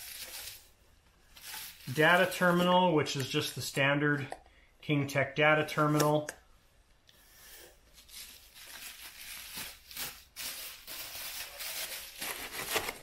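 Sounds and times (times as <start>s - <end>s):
bubble wrap crinkling: 0.0s - 2.7s, 7.9s - 13.0s.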